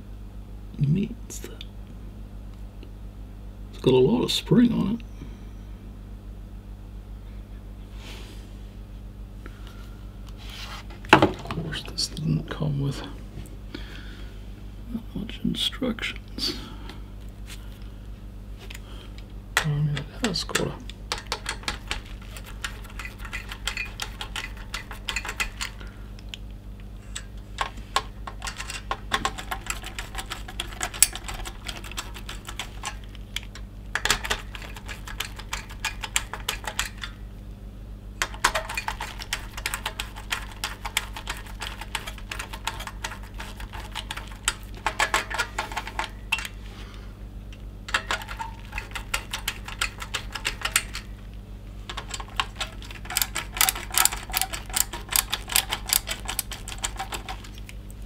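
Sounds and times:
screwdriver clicking on screws: 0:20.5 - 0:25.8, 0:27.6 - 0:37.1, 0:38.2 - 0:46.5, 0:47.9 - 0:51.1, 0:51.9 - 0:57.7.

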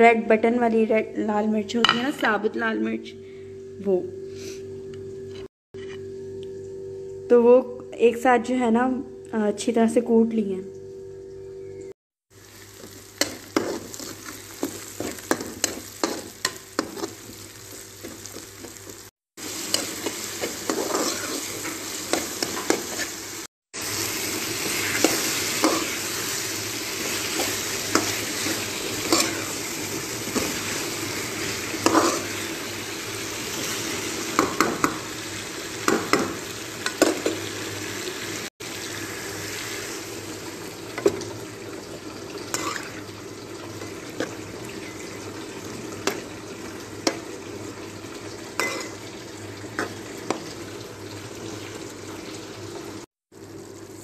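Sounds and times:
food sizzling in a pan: 0:12.3 - 0:54.0
spoon scraping and knocking pan: 0:12.8 - 0:17.4, 0:19.7 - 0:23.2, 0:27.0 - 0:29.6, 0:31.7 - 0:32.4, 0:48.6 - 0:49.0.

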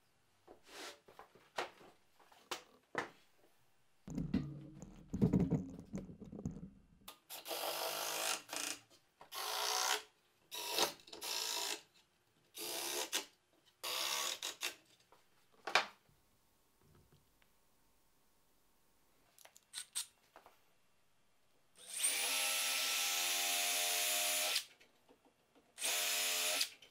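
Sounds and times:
knocks on wood: 0:04.1 - 0:06.7
wood scraping rumble: 0:04.1 - 0:06.9
cordless drill driving screws: 0:25.8 - 0:26.7.

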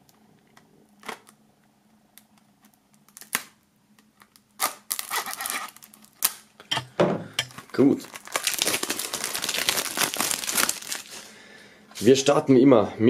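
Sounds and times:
shrink-wrap crinkling: 0:02.3 - 0:06.6, 0:07.5 - 0:11.5.

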